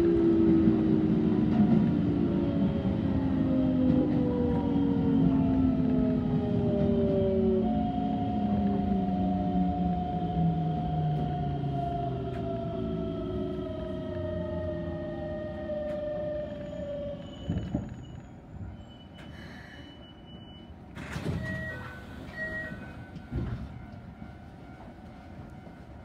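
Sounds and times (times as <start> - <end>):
train running rumble: 21.3 - 26.0
level crossing warning bell: 21.4 - 26.0.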